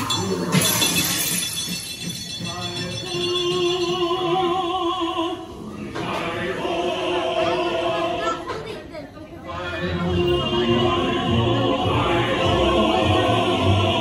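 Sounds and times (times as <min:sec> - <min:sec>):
music: 0:00.0 - 0:08.4, 0:09.4 - 0:14.0
group of voices singing: 0:03.2 - 0:14.0.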